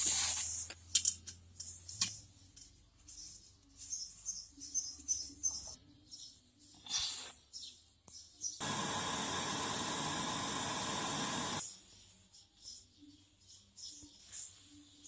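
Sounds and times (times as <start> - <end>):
torch flame hissing: 8.6 - 11.6.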